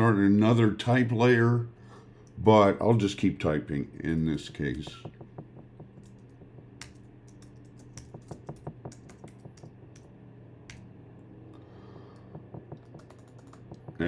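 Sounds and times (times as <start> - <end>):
typing on keyboard: 4.8 - 10.1, 12.2 - 14.0.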